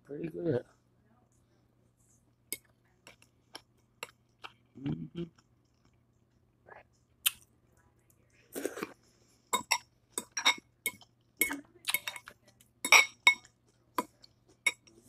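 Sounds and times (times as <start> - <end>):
fork clinking on glass bowl: 9.6 - 14.9.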